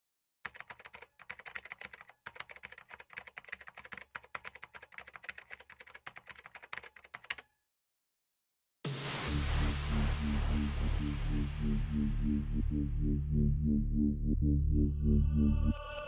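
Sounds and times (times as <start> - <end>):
fast typing on computer keyboard: 0.4 - 7.5.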